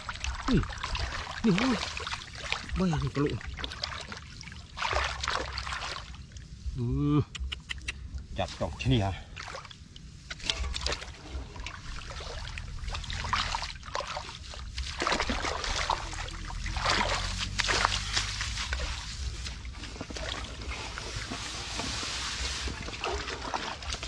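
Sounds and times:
steady low rumble: 0.0 - 24.0
plants rustling and crackling: 14.3 - 24.0.

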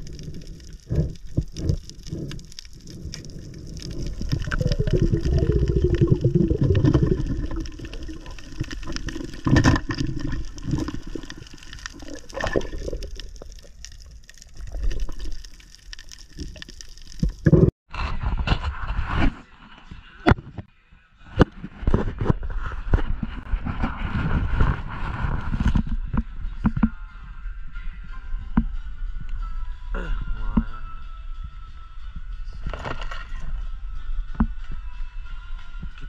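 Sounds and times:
muffled underwater sloshing: 0.0 - 15.6
knocks underwater: 4.2 - 11.4.

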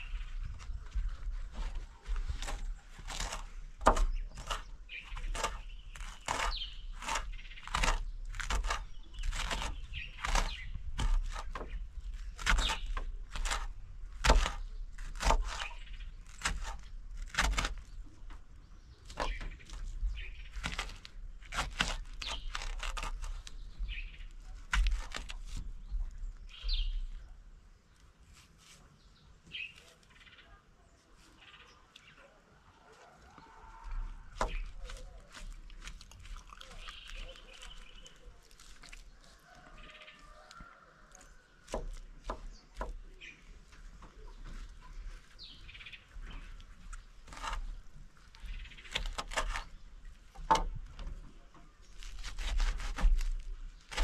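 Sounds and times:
birds chirping: 0.0 - 28.2, 28.8 - 52.7
knife chopping on wooden board: 1.6 - 17.8, 20.5 - 23.4, 24.6 - 25.6, 41.6 - 43.0.

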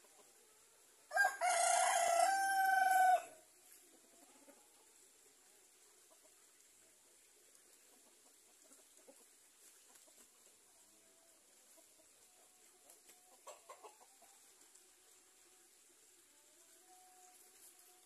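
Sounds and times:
chickens clucking: 0.0 - 0.5, 3.6 - 14.9.

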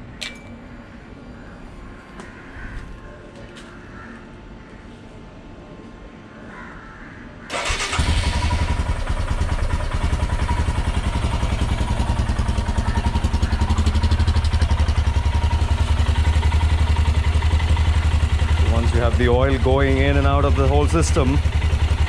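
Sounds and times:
electric starter cranking: 7.5 - 8.8
motorcycle engine idling: 7.5 - 22.0.

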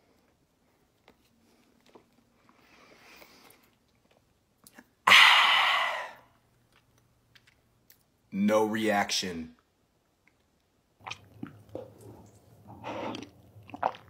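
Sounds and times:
mouth biting and chewing: 11.0 - 14.0.

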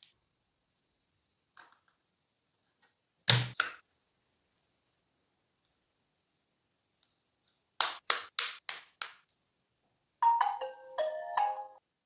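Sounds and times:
sharp plastic snaps: 3.3 - 3.8.

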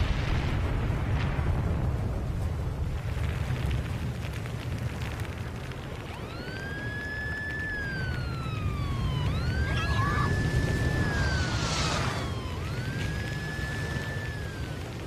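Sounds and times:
steady low rumble: 0.0 - 15.0
siren wailing: 5.9 - 15.0.

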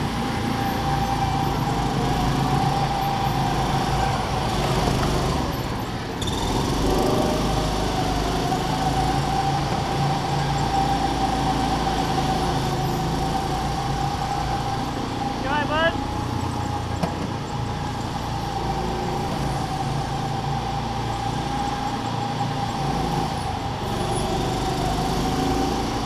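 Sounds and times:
go-kart engine running: 0.0 - 26.0
wheels rumbling on track: 0.0 - 26.0.

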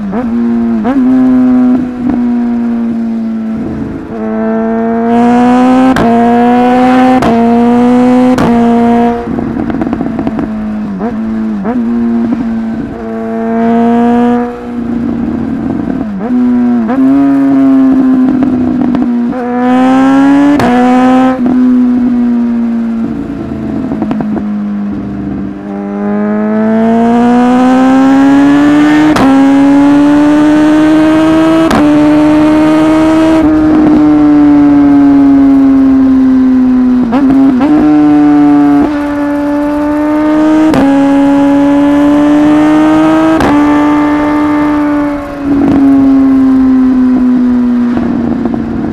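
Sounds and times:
motorcycle engine accelerating: 0.0 - 48.9.

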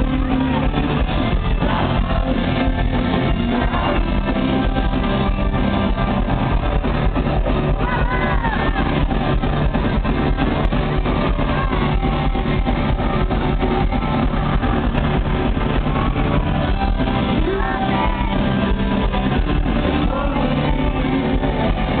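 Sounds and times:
drums keeping a steady beat: 0.0 - 22.0
electric guitars: 0.0 - 22.0
man singing: 17.3 - 22.0.

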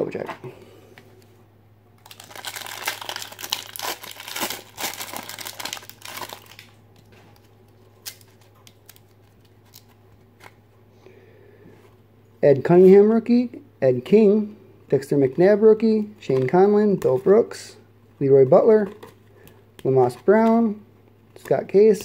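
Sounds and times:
foil wrapper tearing and crinkling: 2.0 - 6.8, 8.0 - 9.9.

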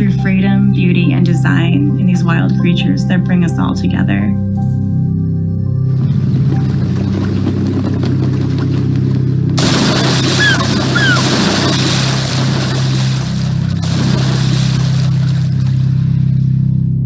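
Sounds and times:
low hum: 4.6 - 17.0
surf breaking on rocks: 9.6 - 15.9
descending bird calls: 10.3 - 11.4.

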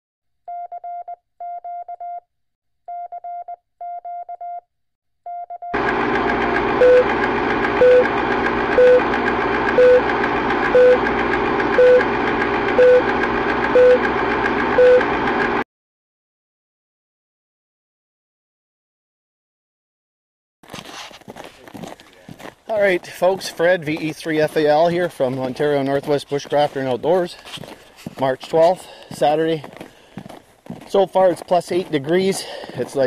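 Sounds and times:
morse code tone: 0.5 - 2.2, 2.9 - 4.7, 5.3 - 5.9, 6.8 - 11.1, 11.7 - 14.1, 14.7 - 15.2
short beeps: 0.5 - 2.2, 2.9 - 4.7, 6.8 - 7.1, 7.8 - 8.1, 8.8 - 9.0, 9.8 - 10.0, 10.7 - 11.0, 11.8 - 12.1, 12.8 - 13.1, 13.8 - 14.0, 14.8 - 15.1
projector rattle: 5.8 - 15.6.

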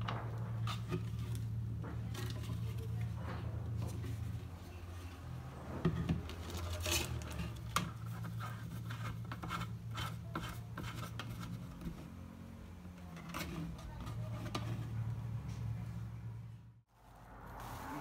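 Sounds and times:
plastic can scraping on wood: 5.6 - 12.1.

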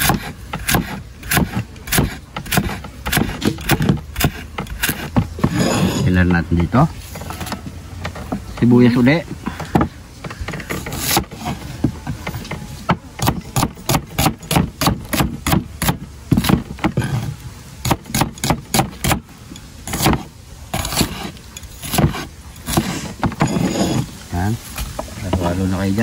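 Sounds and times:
knife chopping on wooden board: 0.0 - 5.7, 12.9 - 17.2, 17.8 - 19.2, 19.9 - 23.6.

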